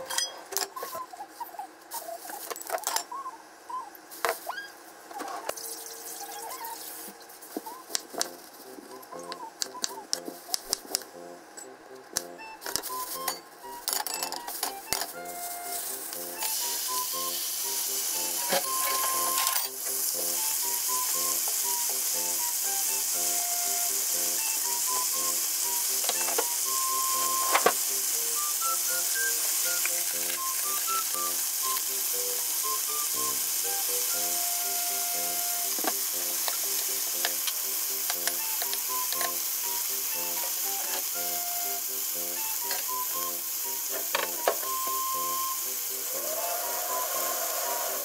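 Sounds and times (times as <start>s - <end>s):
meat sizzling in hot oil: 5.6s - 7.2s, 15.1s - 48.0s
light background music: 7.6s - 48.0s.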